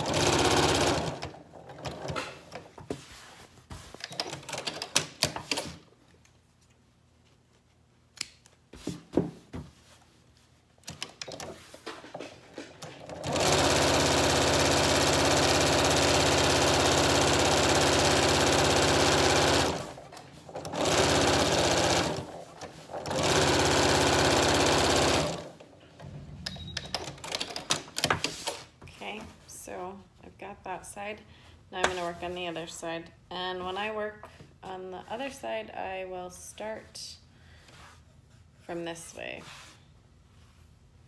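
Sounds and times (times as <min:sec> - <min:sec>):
electric sewing machine stitching: 0:00.0 - 0:02.3, 0:12.9 - 0:25.6.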